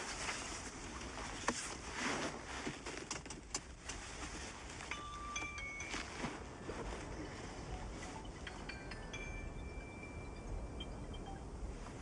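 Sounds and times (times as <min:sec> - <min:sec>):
jacket rustling: 0:00.0 - 0:08.9
thin high tones: 0:04.9 - 0:12.0.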